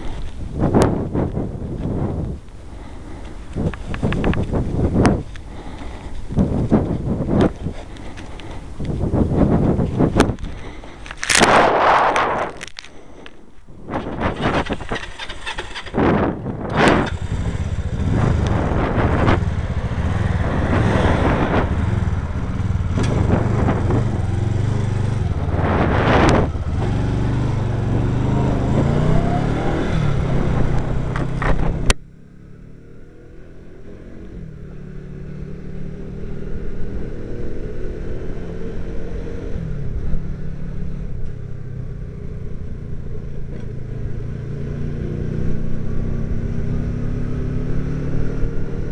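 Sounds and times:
loud rushing noise: 0:10.6 - 0:12.6, 0:13.9 - 0:31.9
motorcycle engine running: 0:14.0 - 0:48.9.

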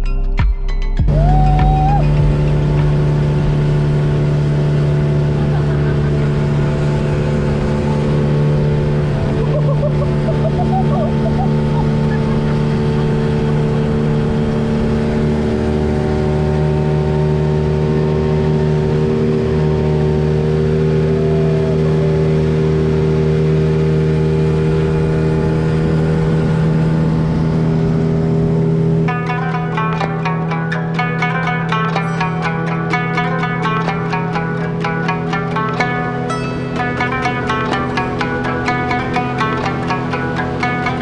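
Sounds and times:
engine droning steadily: 0:01.1 - 0:41.0.

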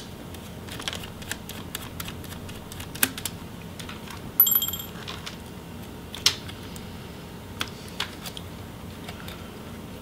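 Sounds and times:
ringing clink of small metal: 0:04.4 - 0:05.0.

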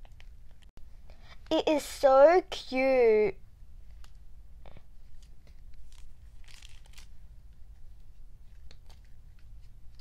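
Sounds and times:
packaging crinkling and rustling: 0:05.1 - 0:07.2.

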